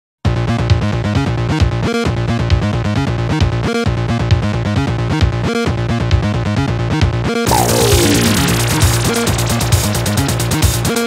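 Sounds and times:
falling synth glide: 7.5 - 9.7
dark wave electronic music: 7.5 - 10.0.

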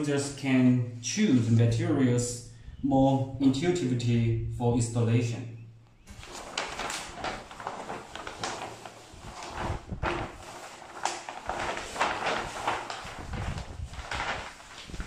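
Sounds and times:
paper sheets rustling and crinkling: 6.1 - 15.0.

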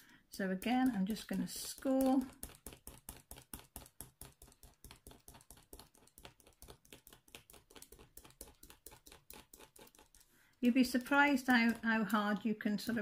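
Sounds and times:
knife blade scoring paper: 1.7 - 10.2.

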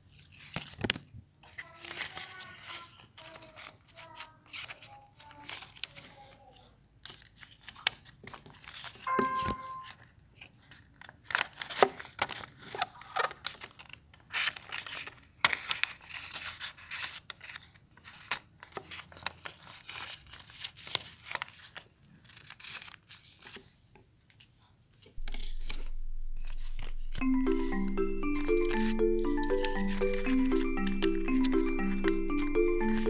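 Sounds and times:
paper rustling and crinkling: 0.0 - 9.0, 9.8 - 27.7
steady low hum: 25.2 - 28.0.

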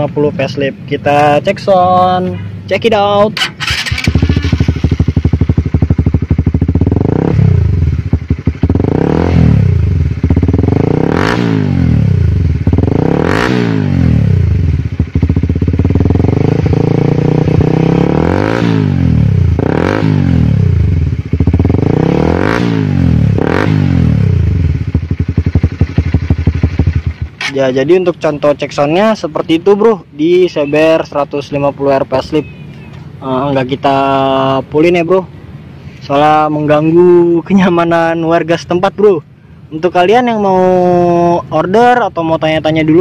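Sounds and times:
motorcycle engine revving: 3.2 - 29.8.

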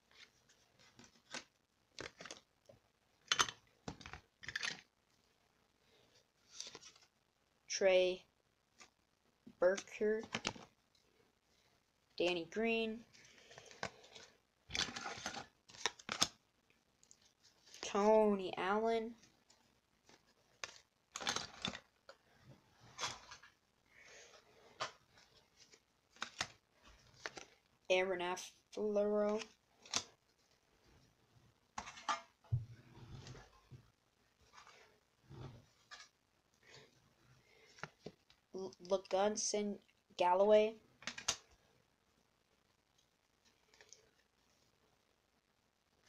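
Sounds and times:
trading cards clicking and rustling: 0.2 - 2.5, 3.2 - 4.9, 9.7 - 10.7, 13.4 - 16.4, 20.1 - 22.2, 24.8 - 27.6, 29.2 - 30.2, 41.0 - 41.4.

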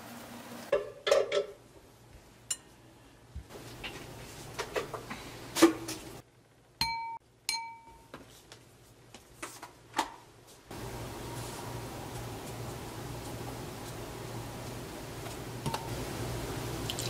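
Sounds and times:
wooden spoon tapping glass bowl: 6.8 - 8.0
glass bowl clinking: 6.8 - 8.1
short bright pings: 6.8 - 8.1.

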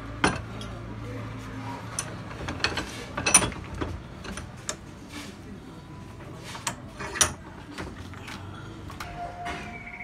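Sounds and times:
metal clanks and knocks: 0.1 - 0.8, 1.9 - 4.9.

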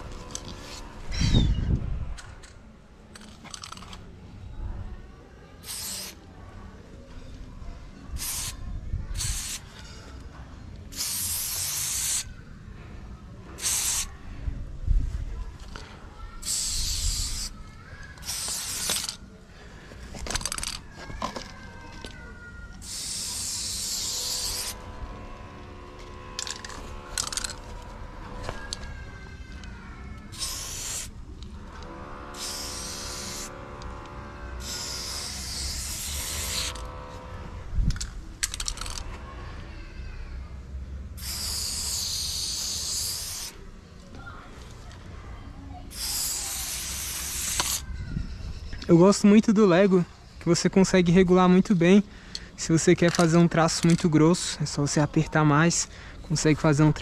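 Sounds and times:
spray bottle hissing: 5.6 - 6.2, 8.2 - 8.6, 9.2 - 9.7, 10.9 - 12.3, 13.6 - 14.1, 16.4 - 17.6, 18.2 - 19.2, 22.8 - 24.8, 30.3 - 31.2, 32.3 - 33.5, 34.6 - 36.8, 41.2 - 43.6, 45.9 - 47.8.

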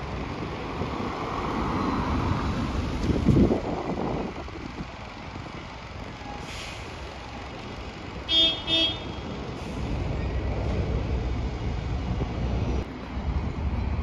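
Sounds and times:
bus engine rumbling: 0.0 - 14.0
vehicle horn toots: 8.3 - 9.2.

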